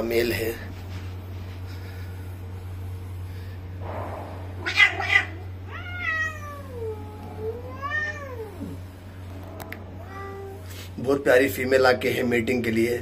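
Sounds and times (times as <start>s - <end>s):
cat hissing: 4.5s - 8.9s
cat yowling: 4.6s - 8.8s, 10.0s - 10.7s.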